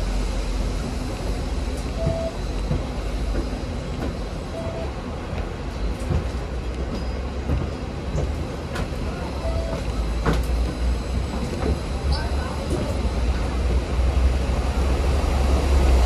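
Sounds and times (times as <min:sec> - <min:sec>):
tram rumbling on rails: 0:00.0 - 0:16.0
short beep: 0:02.0 - 0:02.4, 0:04.5 - 0:04.9.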